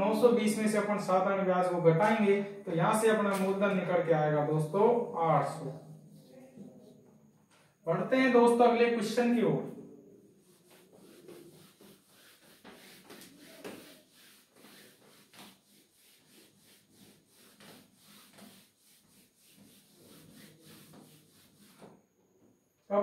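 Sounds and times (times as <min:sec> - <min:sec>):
duster wiping a whiteboard: 0:04.6 - 0:22.4.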